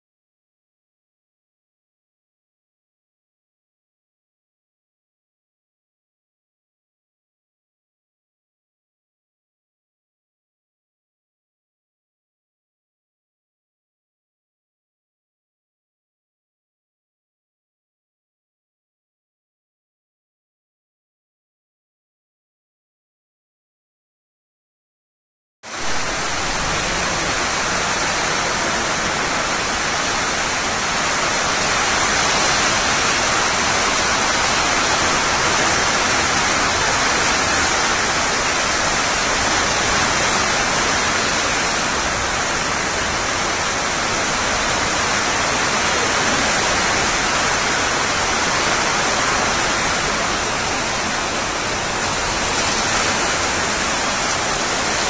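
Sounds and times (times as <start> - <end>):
heavy rain: 25.7 - 55.0
strong wind: 25.7 - 55.0.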